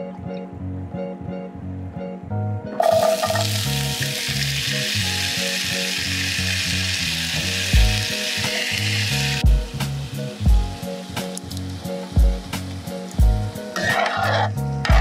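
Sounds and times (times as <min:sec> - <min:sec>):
background music with bass line: 0:00.0 - 0:15.0
vegetables sizzling in hot oil: 0:02.8 - 0:14.3.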